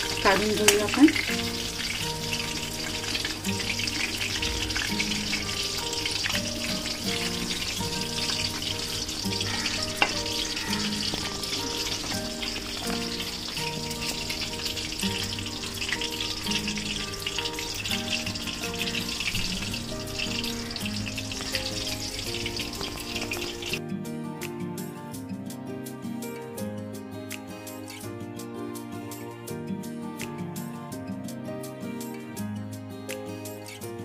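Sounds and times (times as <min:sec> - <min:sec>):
food sizzling in hot oil: 0:00.0 - 0:23.8
background music: 0:00.0 - 0:34.0.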